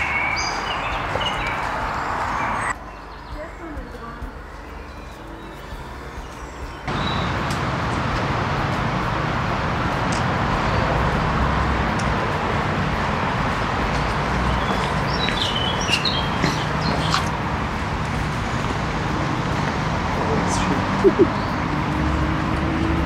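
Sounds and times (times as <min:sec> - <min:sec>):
high bird chirps: 0:00.0 - 0:07.4, 0:14.4 - 0:17.3, 0:21.0 - 0:21.8
steady rushing noise: 0:00.0 - 0:23.0
trekking poles tapping: 0:11.9 - 0:20.2
footsteps on stone steps: 0:13.9 - 0:19.8.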